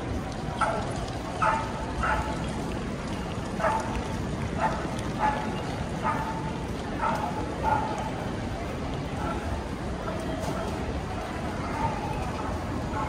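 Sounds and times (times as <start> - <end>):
crowd noise: 0.0 - 13.0
dog barking: 1.4 - 2.4, 3.6 - 3.9, 4.6 - 6.4, 7.0 - 8.1.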